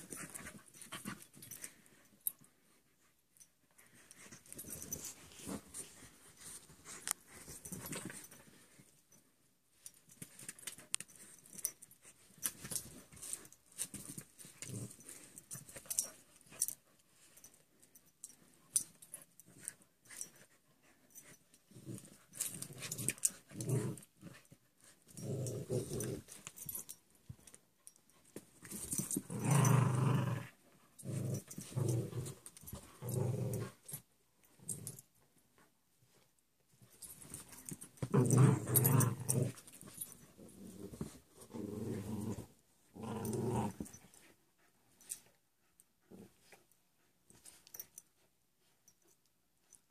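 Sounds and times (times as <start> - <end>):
dogs growling: 25.2 - 26.4, 29.0 - 33.8, 38.0 - 39.8, 40.4 - 44.0.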